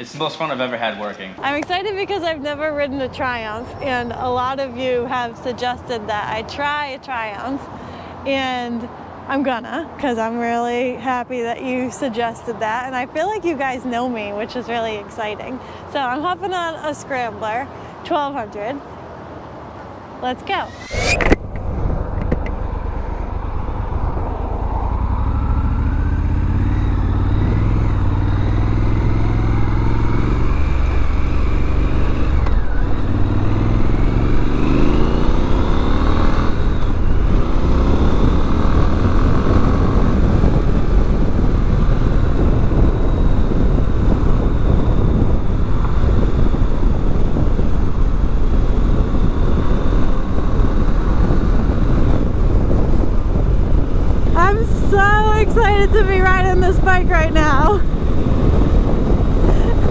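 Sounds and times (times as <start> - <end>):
wind noise: 20.3 - 59.9
motorcycle engine accelerating: 20.6 - 59.9.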